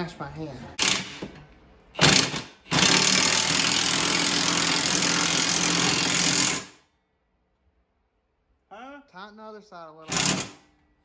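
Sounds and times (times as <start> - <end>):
cordless impact wrench running: 0.8 - 1.3, 2.0 - 6.8, 10.1 - 10.6.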